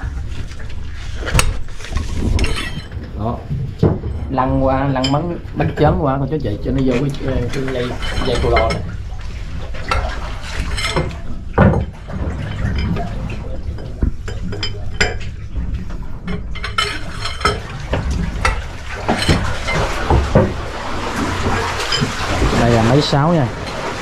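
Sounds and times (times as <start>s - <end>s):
boat engine rumble: 0.0s - 24.0s
metallic clinks and knocks: 2.3s - 3.0s.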